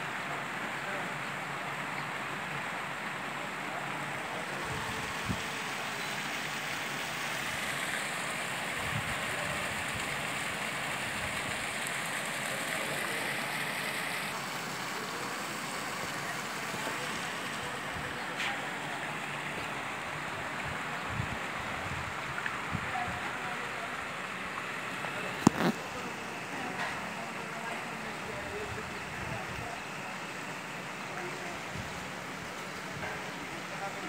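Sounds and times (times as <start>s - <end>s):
fountain water splashing: 0.0s - 34.0s.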